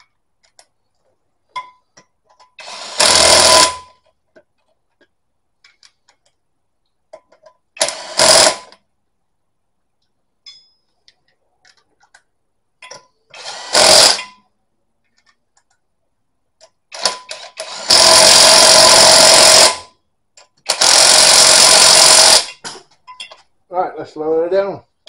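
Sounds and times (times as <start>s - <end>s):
impact wrench bursts: 2.6s - 4.0s, 7.8s - 8.8s, 13.3s - 14.4s, 16.9s - 19.9s, 20.6s - 22.7s.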